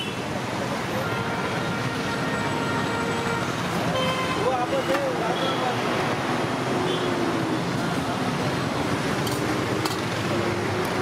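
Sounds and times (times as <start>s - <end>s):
roadside traffic: 0.0s - 11.0s.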